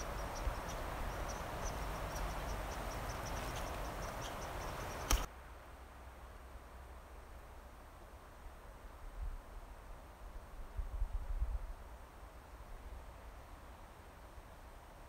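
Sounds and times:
faint high chirps: 0.0 - 5.3
steady forest hiss: 0.0 - 15.0
sharp click: 5.0 - 5.3.

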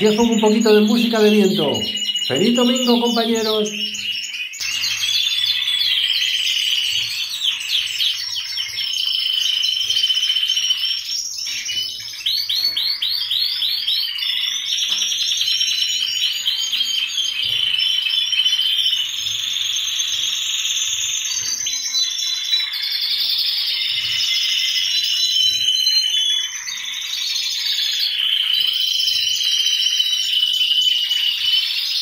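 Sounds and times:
canaries singing: 0.0 - 32.0.

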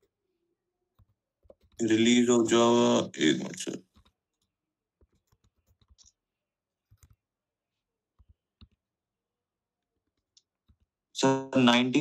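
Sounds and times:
faint keyboard typing: 0.9 - 2.2, 3.7 - 7.4, 8.1 - 8.9, 9.8 - 11.0.

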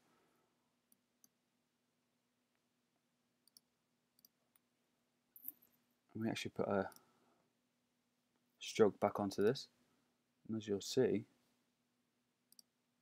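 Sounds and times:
computer mouse clicks: 3.4 - 4.6, 12.5 - 12.7.

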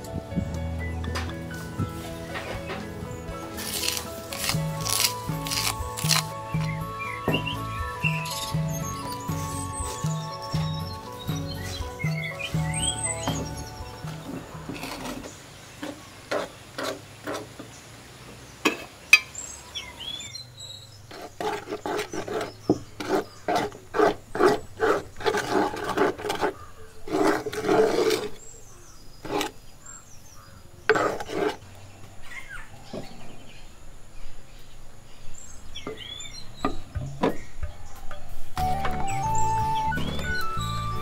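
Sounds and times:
birds chirping: 0.0 - 16.8, 17.6 - 23.8, 26.4 - 41.0
spoon scraping batter in bowl: 21.1 - 28.5, 30.9 - 31.7.

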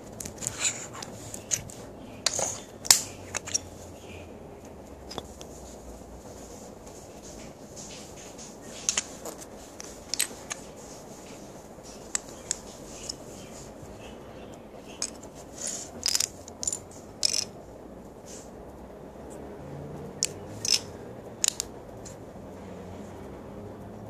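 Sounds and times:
plastic bricks clicking: 0.2 - 3.7, 5.0 - 5.5, 10.1 - 10.6, 12.1 - 13.2, 14.9 - 15.3, 15.9 - 17.5, 20.2 - 21.7.

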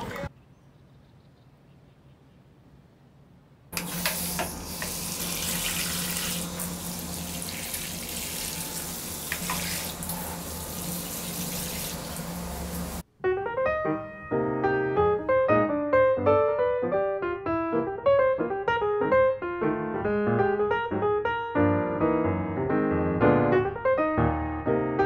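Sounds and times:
hose spraying water: 3.8 - 13.0
piano music: 4.5 - 25.0.

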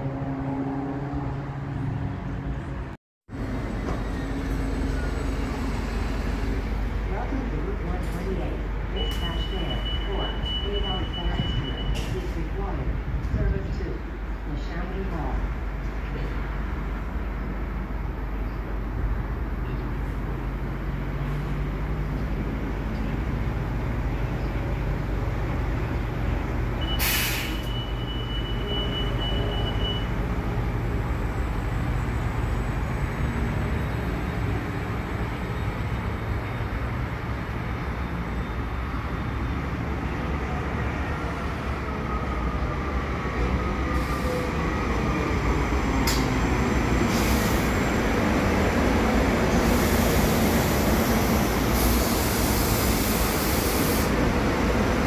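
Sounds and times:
electric train running past: 3.4 - 7.5, 30.2 - 55.0.

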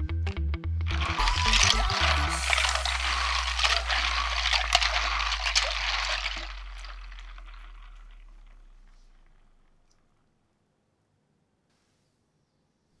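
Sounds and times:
water sloshing: 1.0 - 9.6.

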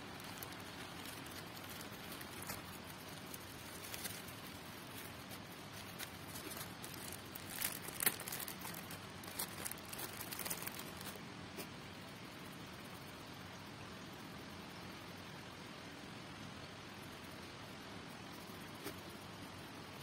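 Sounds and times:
plastic packets crinkling: 0.0 - 11.2
faint steady hiss: 0.0 - 20.0.

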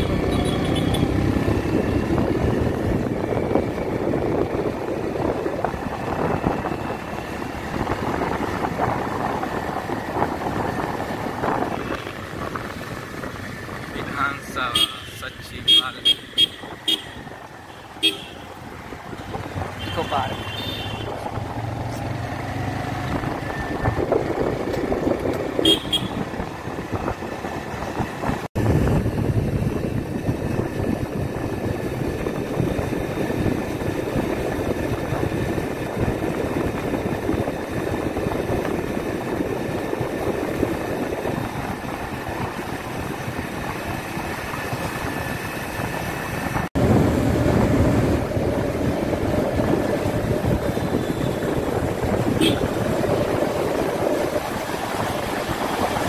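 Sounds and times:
vehicle horn toot: 0.0 - 1.1, 14.7 - 18.5, 19.8 - 21.2, 25.6 - 26.2, 50.7 - 51.6, 52.3 - 52.8
wind and engine rush: 0.0 - 56.0.

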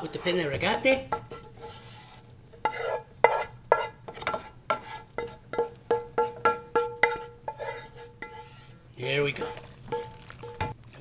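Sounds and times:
stirring thick sauce: 0.0 - 11.0
wooden spoon knocking metal pot: 5.2 - 7.6.

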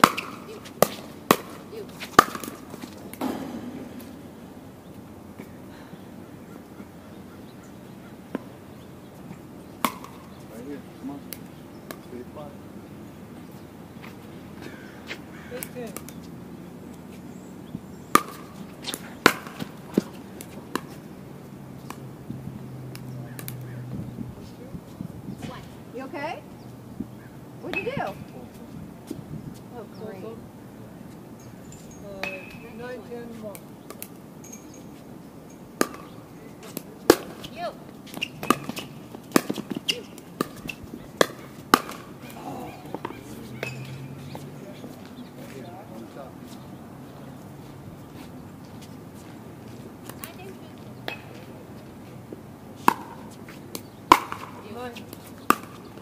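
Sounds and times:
ball bouncing on hard court: 0.0 - 4.4, 9.8 - 10.2, 18.1 - 21.0, 35.8 - 37.5, 38.1 - 42.1, 52.8 - 56.0.

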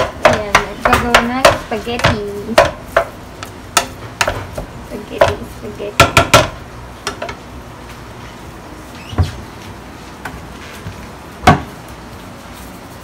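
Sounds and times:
spatula knocking against a pot: 0.0 - 7.4
frying pan clunking on burners: 6.0 - 7.4.

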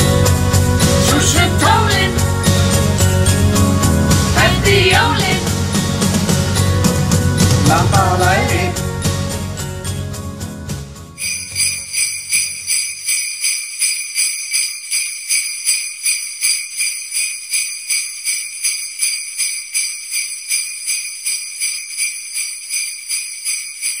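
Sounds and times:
jingle bells shaking: 0.0 - 5.7, 11.2 - 24.0.

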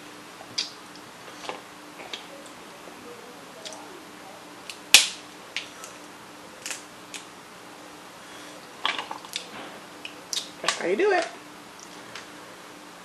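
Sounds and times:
crab shell cracking: 4.6 - 7.3.

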